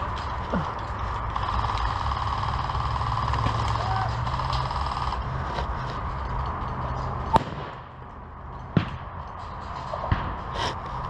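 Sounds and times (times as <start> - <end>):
airsoft gunfire cracks: 7.4 - 7.9.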